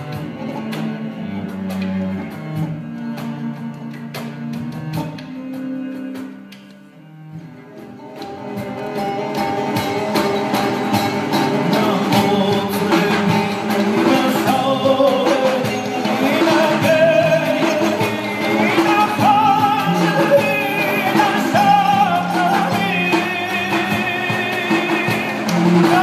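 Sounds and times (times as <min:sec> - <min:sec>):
bowed fiddle: 0:00.0 - 0:26.0
hand drum: 0:00.0 - 0:26.0
plucked lute: 0:00.0 - 0:26.0
man singing: 0:11.5 - 0:26.0.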